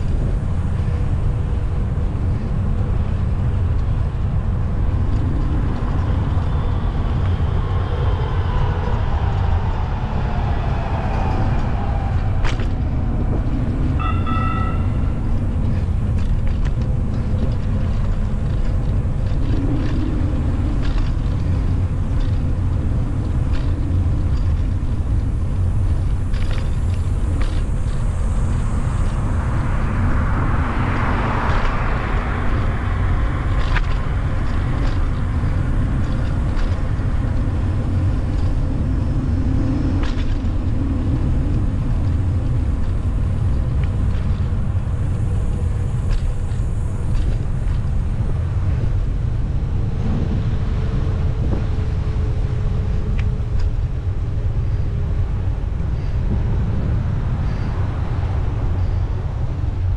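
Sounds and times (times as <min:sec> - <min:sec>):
light bicycle clicks: 0:00.0 - 0:59.9
wind and road noise: 0:00.0 - 0:59.9
vehicle passing: 0:05.1 - 0:16.4.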